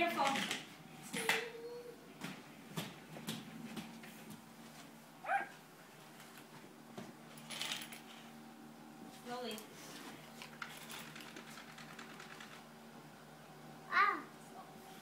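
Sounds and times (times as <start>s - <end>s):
plastic wheels rolling on tile: 7.4s - 8.1s, 10.4s - 12.6s
scattered clicks: 10.4s - 12.7s.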